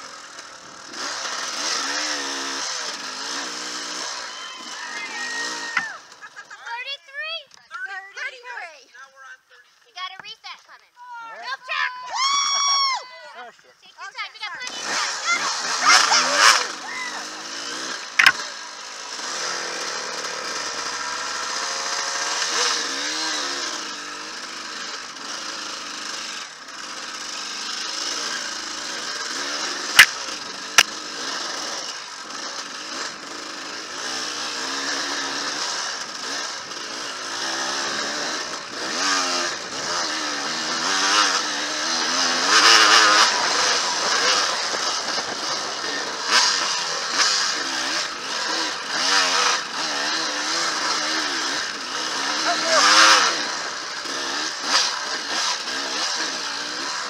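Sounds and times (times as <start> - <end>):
dirt bike engine revving: 0.0 - 6.9, 14.5 - 57.0
sharp knocks: 18.2 - 18.4.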